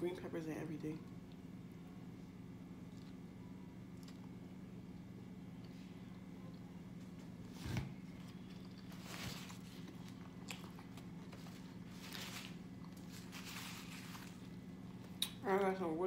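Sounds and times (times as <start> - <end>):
steady low hum: 0.0 - 16.0
chewing with wet smacks: 2.9 - 3.2, 3.9 - 4.4, 9.8 - 11.4.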